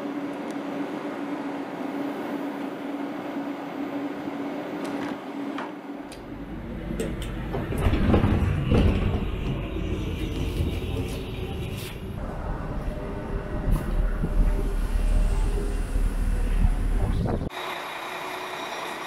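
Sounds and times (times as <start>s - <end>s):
train door opening: 4.8s - 17.5s
train doors sliding shut: 4.8s - 17.5s
steady hum: 5.9s - 17.5s.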